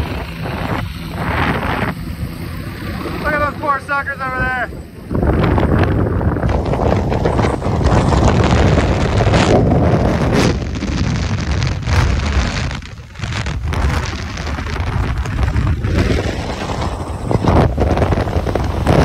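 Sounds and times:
helicopter engine and rotor: 0.0 - 9.4, 15.8 - 19.0
wind buffeting microphone: 0.0 - 19.0.

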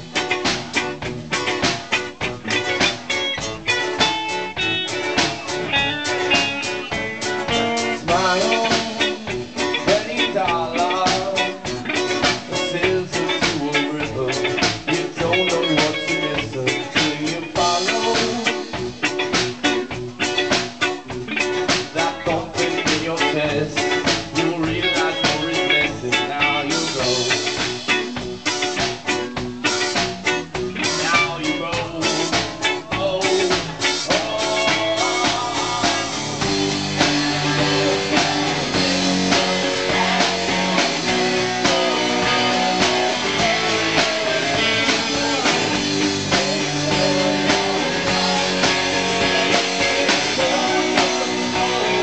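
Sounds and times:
drum kit: 0.0 - 52.0
guitars: 0.0 - 52.0
woman singing: 37.2 - 52.0.

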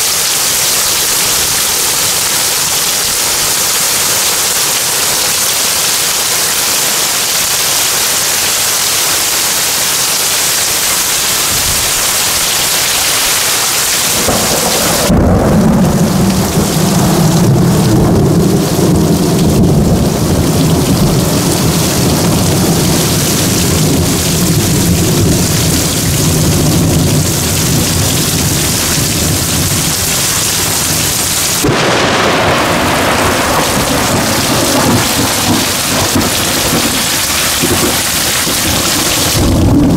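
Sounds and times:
heavy rain: 0.0 - 39.9
thunder rumbling: 14.0 - 39.9.

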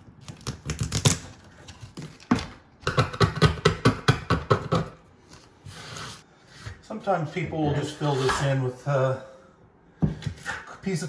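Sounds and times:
hand tool scraping vinyl floor: 4.7 - 8.5.

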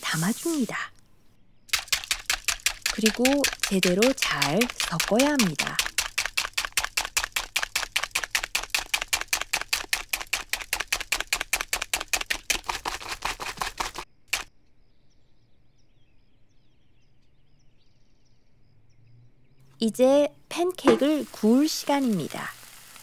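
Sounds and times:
whisk clicking against bowl: 1.7 - 14.4.

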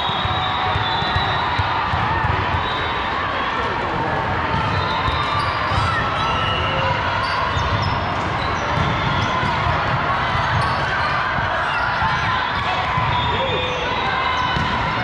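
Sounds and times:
hubbub of voices: 0.0 - 15.0
volleyballs thudding: 14.5 - 15.0.

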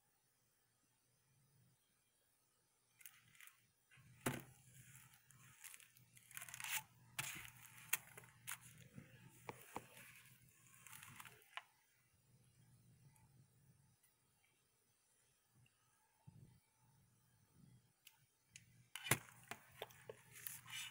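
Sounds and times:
paper rustling and scraping: 4.3 - 11.6, 19.0 - 20.9.

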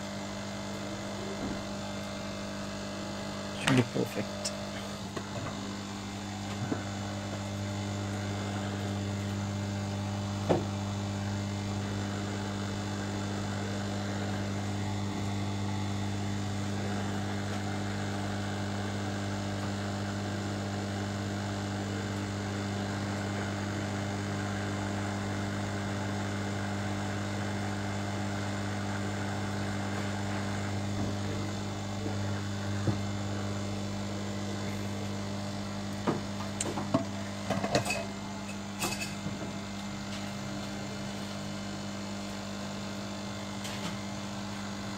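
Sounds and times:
hot-air rework station hissing: 0.0 - 44.9.

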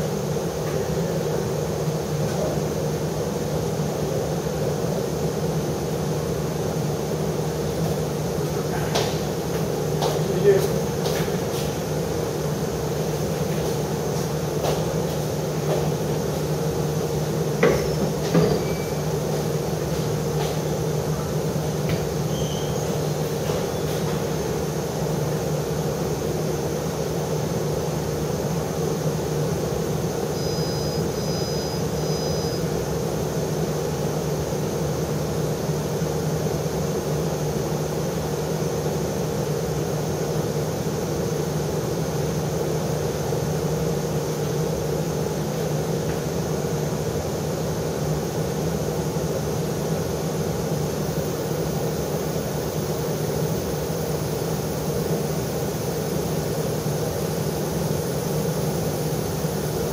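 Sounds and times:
machine hum: 0.0 - 59.9
short high-pitched beeping: 30.4 - 32.6.

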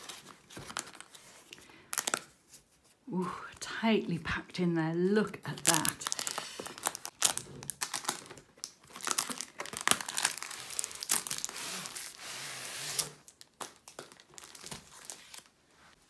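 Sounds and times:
plastic wrap crinkling: 0.0 - 2.4, 5.3 - 12.2, 12.9 - 15.9.

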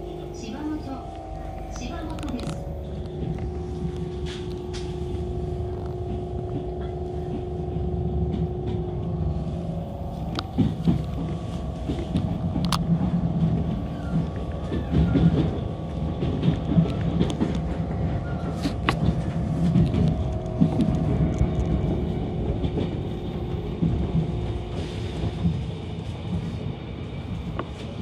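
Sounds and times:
train rumbling: 0.0 - 28.0
wheels knocking on track: 10.1 - 25.5.

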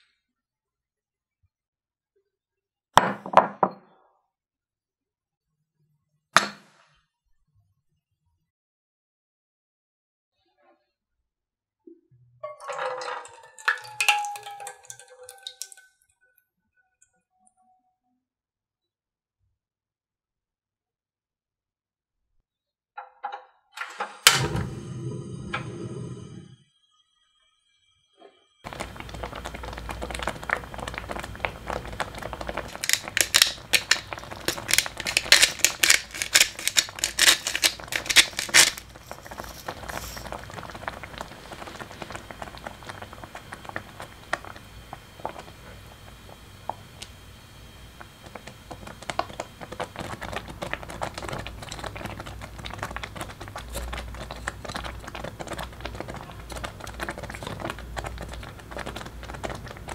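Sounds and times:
porridge bubbles popping: 12.6 - 15.8, 28.6 - 59.9.

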